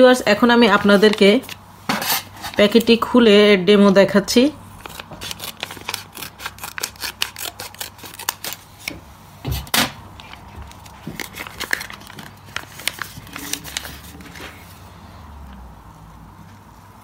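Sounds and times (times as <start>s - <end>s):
foil sachet crinkling: 4.8s - 8.9s, 10.2s - 14.8s
scissors snipping foil: 4.8s - 8.9s.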